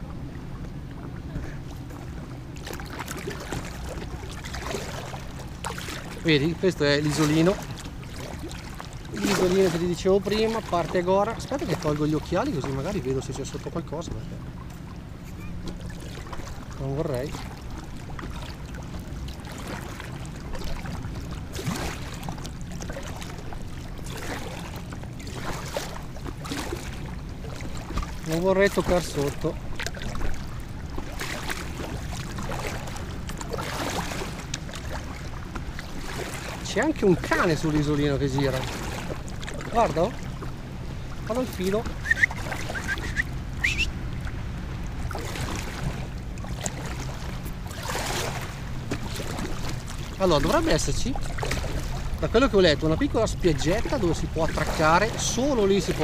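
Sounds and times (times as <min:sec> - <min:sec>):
paddle splashing in water: 0:00.0 - 0:56.0
short rising chirps: 0:42.0 - 0:43.9.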